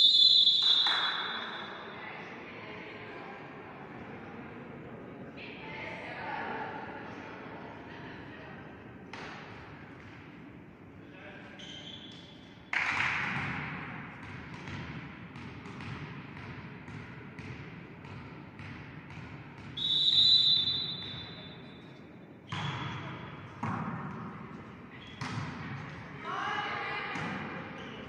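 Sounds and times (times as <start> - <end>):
referee's whistle: 0.0 - 1.8, 19.8 - 21.8
volleyball bouncing on floor: 9.1 - 10.3, 12.7 - 20.2, 22.5 - 26.0, 27.1 - 27.9.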